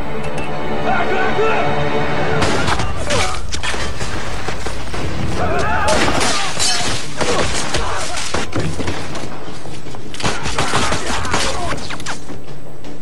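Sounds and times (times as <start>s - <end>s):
thuds and crashes: 2.4s - 9.3s.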